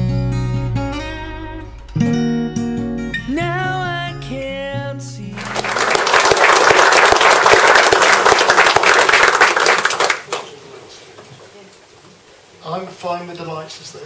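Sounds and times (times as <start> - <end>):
acoustic guitar with singing: 0.0 - 5.8
audience applause: 5.4 - 10.6.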